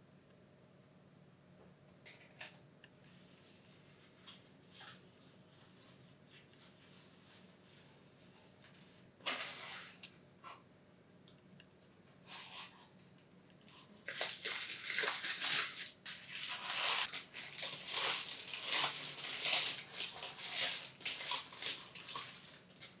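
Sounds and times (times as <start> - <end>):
tissue paper crinkling: 14.0 - 23.0.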